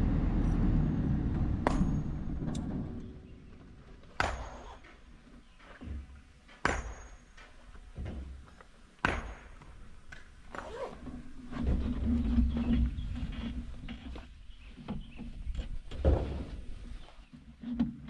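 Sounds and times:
excavator engine and hydraulics drone: 0:00.0 - 0:04.0.

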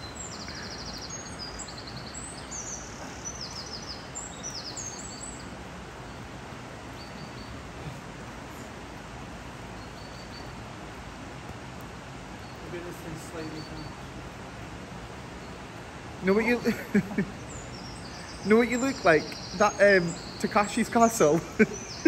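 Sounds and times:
songbird trilling: 0:00.0 - 0:05.6, 0:16.2 - 0:22.0.

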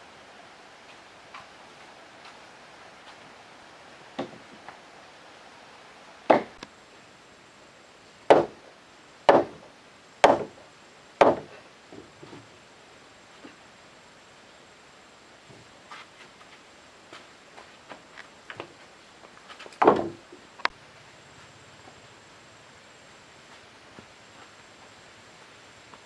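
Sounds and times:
wood striking wood: 0:04.2 - 0:04.7, 0:06.3 - 0:06.6, 0:08.3 - 0:08.6, 0:09.3 - 0:10.6, 0:11.2 - 0:12.4, 0:19.8 - 0:20.3.

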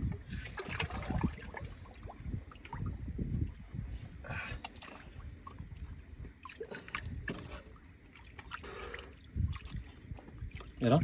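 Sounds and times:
shallow water sloshing: 0:00.0 - 0:11.0
small splashes: 0:00.2 - 0:03.0.

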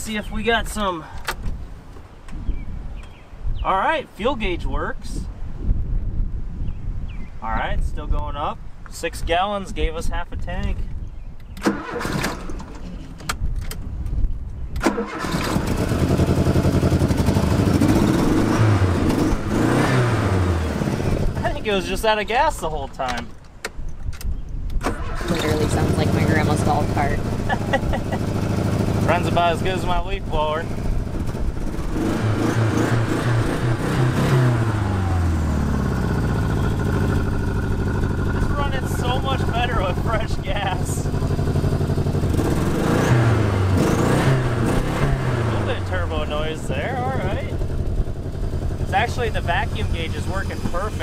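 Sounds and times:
car engine cranking and running: 0:11.4 - 0:13.8, 0:14.8 - 0:21.8, 0:24.8 - 0:51.0.

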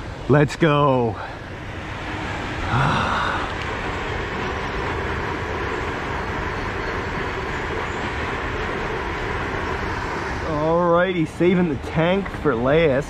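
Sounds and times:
steady rumbling noise: 0:00.0 - 0:13.0.

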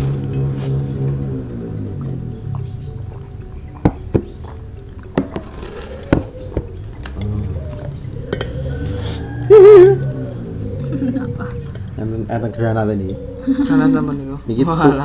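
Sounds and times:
soft background music: 0:00.0 - 0:15.0
loud wavering pitched sound: 0:05.7 - 0:15.0.

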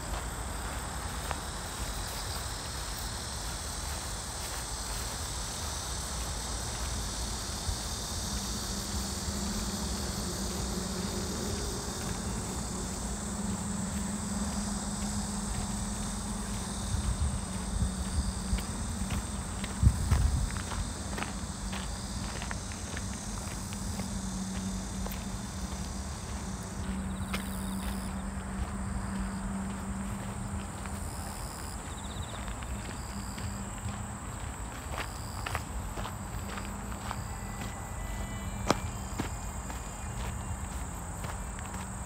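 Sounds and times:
footsteps on a path: 0:00.0 - 0:42.0
insects chirring: 0:00.0 - 0:42.0
low hum: 0:06.7 - 0:30.9.

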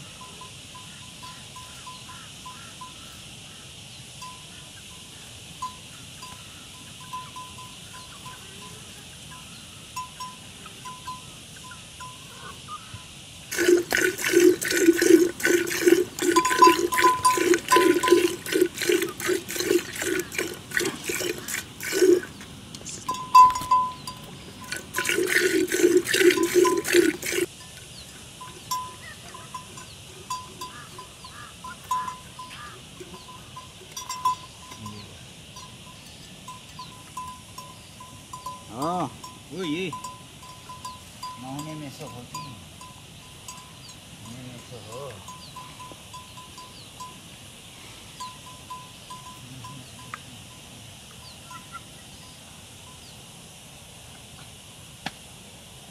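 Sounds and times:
milk squirting into metal bowl: 0:13.5 - 0:27.5.

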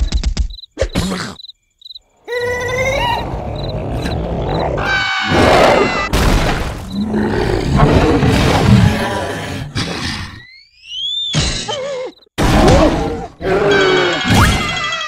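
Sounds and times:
faint cricket chirps: 0:00.0 - 0:04.7
loud growling roar: 0:03.0 - 0:06.0, 0:07.0 - 0:10.1
high-pitched cartoon squeals: 0:13.5 - 0:15.0.

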